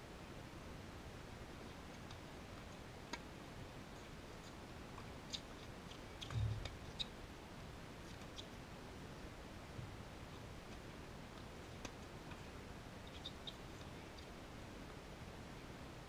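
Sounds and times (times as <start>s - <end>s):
brief low thump: 6.3s - 6.8s.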